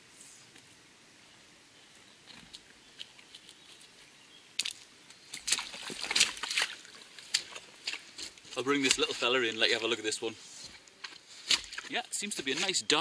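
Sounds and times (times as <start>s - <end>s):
faint river hiss: 0.0s - 13.0s
boots splashing through water: 4.6s - 9.9s, 11.0s - 13.0s
boots knocking on stones: 11.0s - 13.0s.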